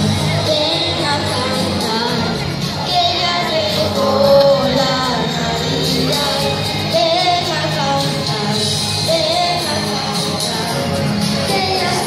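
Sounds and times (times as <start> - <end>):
amplified backing music: 0.0 - 12.0
children singing into microphones: 0.0 - 12.0.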